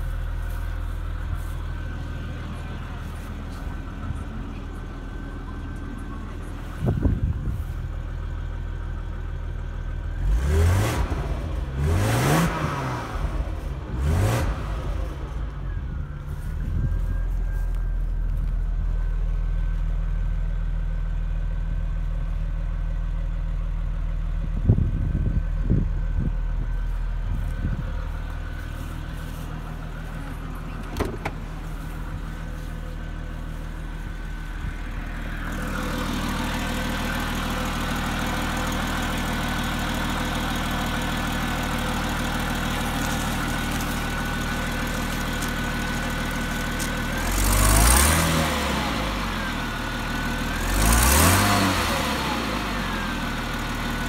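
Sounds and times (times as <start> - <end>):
car engine idling: 0.0 - 54.0
engine knocks: 24.4 - 47.4.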